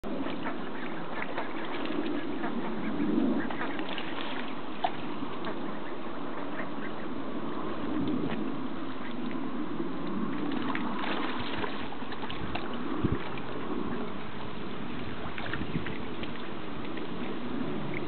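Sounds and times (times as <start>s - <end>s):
ducks splashing: 0.0s - 18.0s
water noise: 0.0s - 18.0s
ducks quacking: 0.2s - 7.2s.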